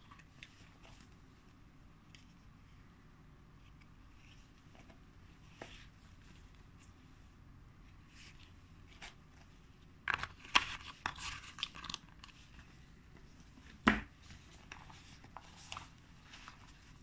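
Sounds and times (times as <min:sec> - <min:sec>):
plastic crinkling and rustling: 0:08.1 - 0:12.8, 0:13.4 - 0:17.0.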